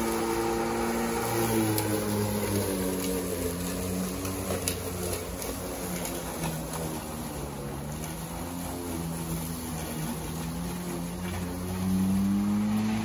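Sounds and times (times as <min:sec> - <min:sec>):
electric lawnmower cutting grass: 0:00.0 - 0:13.0.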